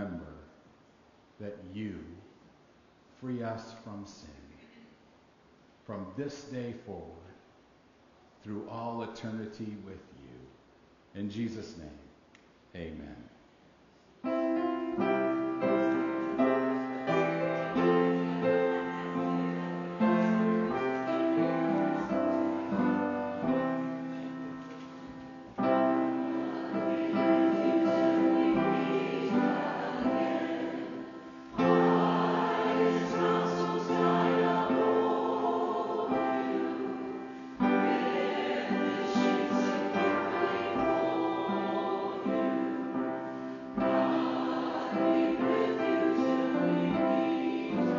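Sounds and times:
slow keyboard chords: 14.2s - 47.9s.

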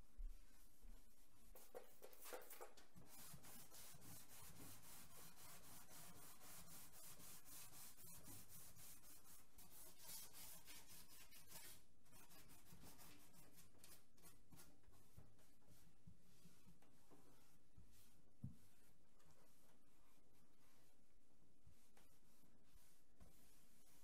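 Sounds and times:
sandpaper rubbing on panel: 3.1s - 14.0s.

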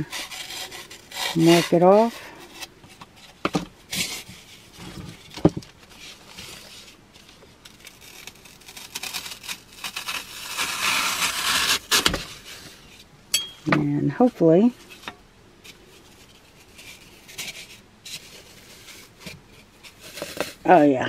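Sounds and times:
knife sawing through foam: 0.0s - 2.2s, 8.0s - 12.1s.

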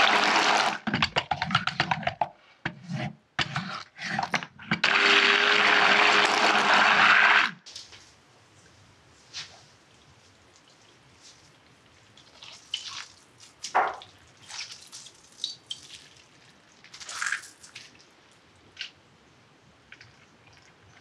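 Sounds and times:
gelatin sheets being squeezed: 10.5s - 18.1s.

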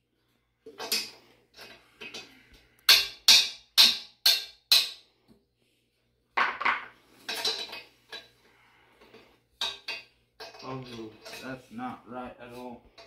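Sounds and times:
metal clatter: 6.4s - 8.3s, 9.0s - 11.6s.

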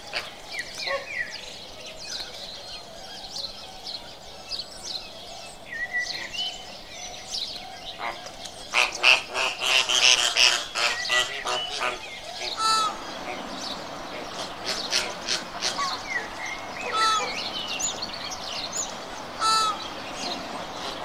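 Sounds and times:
flamingos calling: 7.9s - 21.0s.

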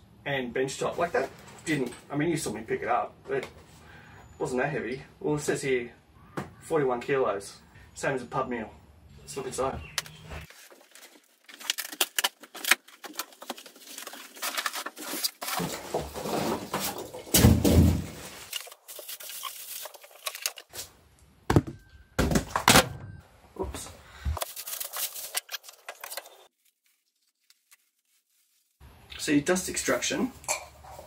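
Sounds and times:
plastic wrapping crinkling: 10.4s - 17.3s, 18.1s - 20.8s, 24.4s - 28.8s
cardboard tearing: 10.5s - 20.8s.

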